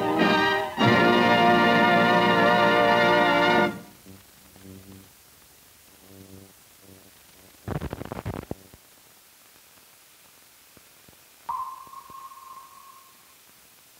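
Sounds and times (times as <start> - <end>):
steady hiss: 0.0 - 13.9
film crackling pops and clicks: 6.6 - 13.1
high beep: 11.5 - 13.2.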